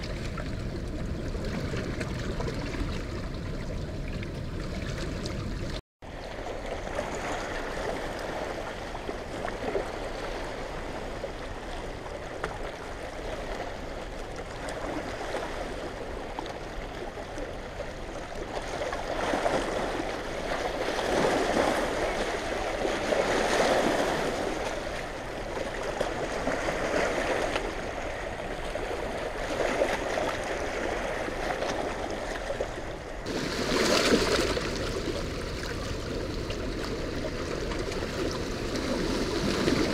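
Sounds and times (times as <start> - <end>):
water rushing against rocks: 28.9 - 39.9.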